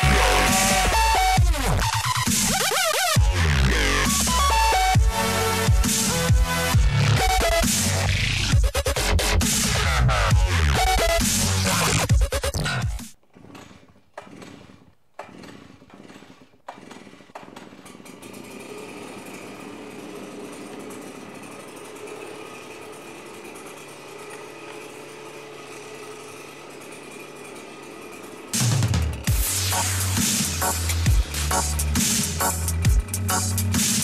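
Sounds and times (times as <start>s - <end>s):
leaf blower pull-start: 0.0s - 34.0s
small engine idling: 0.0s - 34.0s.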